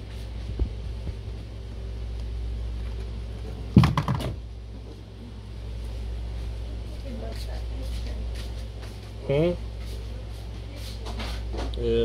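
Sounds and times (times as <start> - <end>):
steady low hum: 0.0 - 12.0
phone handling knocks and rustling: 3.8 - 4.4.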